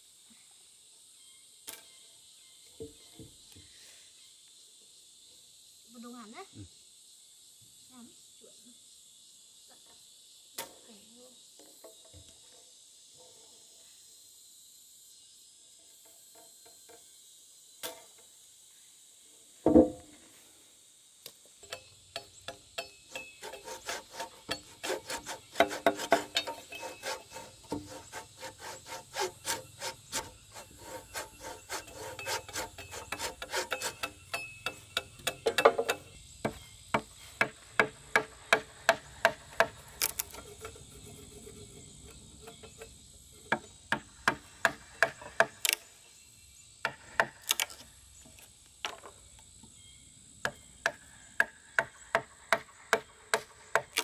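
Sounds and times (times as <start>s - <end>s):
mallet striking wood chisel: 29.2s - 36.1s.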